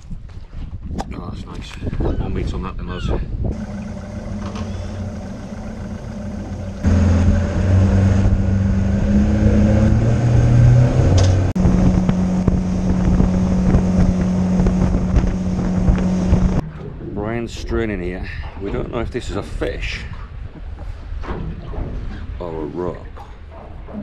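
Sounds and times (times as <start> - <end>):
outboard motor running: 3.5 - 10.5, 11.2 - 17.1.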